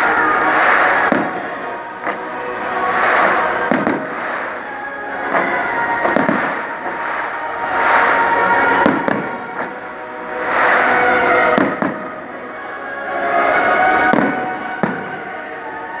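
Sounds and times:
loud music: 0.0 - 16.0
firework shells bursting: 2.9 - 4.6.

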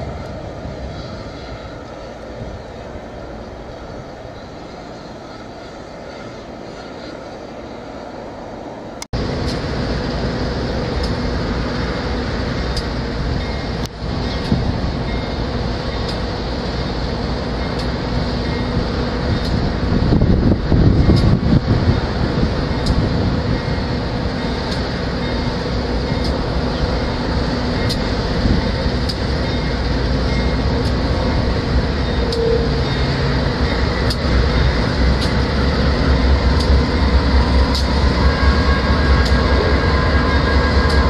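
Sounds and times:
diesel locomotive rumble: 0.0 - 41.0
faint ticks: 16.0 - 16.2.

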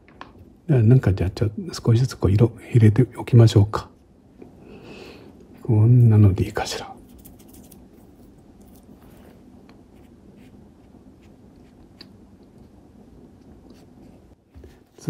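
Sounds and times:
room hiss: 0.0 - 15.0
brush strokes on paper: 7.0 - 12.1.

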